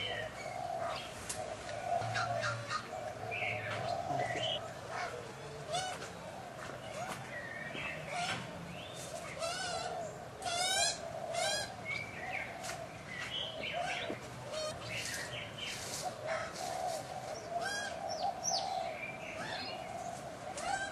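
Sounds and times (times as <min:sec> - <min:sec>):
birds chattering: 0:00.0 - 0:20.9
bird chirps and trills: 0:03.4 - 0:04.6.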